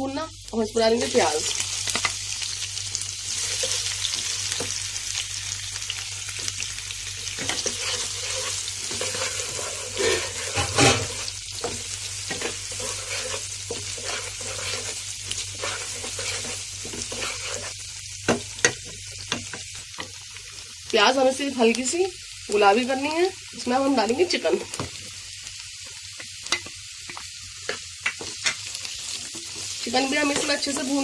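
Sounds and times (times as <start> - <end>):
onion sizzling in hot oil: 0.0 - 31.0
wooden spatula scraping pan: 7.4 - 17.8, 29.3 - 31.0.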